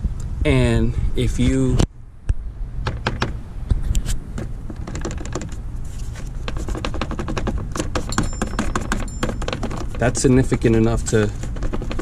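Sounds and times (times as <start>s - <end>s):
plastic reservoir rattling: 6.4s - 10.2s, 11.4s - 12.0s.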